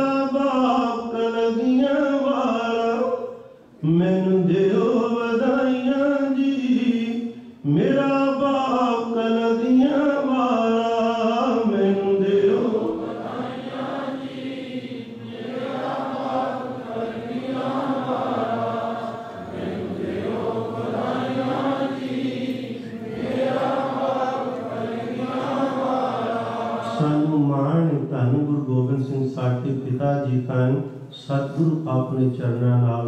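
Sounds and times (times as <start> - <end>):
voices chanting together: 11.4 - 27.3.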